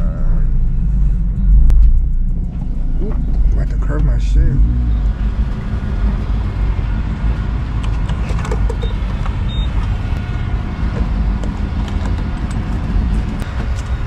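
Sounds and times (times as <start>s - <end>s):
low rumble of vehicles: 0.0s - 14.0s
fuel pump keypad beeps: 8.8s - 9.8s.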